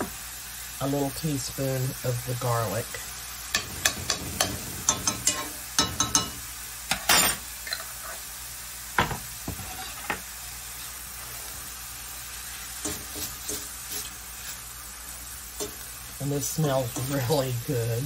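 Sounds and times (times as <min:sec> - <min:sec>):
food sizzling in a skillet: 0:00.0 - 0:18.0
metal fork scraping a pan: 0:03.5 - 0:08.2, 0:09.6 - 0:10.2, 0:12.8 - 0:14.6.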